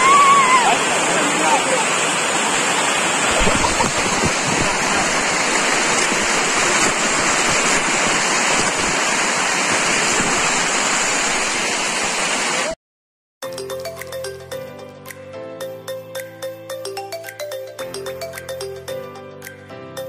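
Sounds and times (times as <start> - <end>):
waterfall rushing over rock: 0.0 - 12.8.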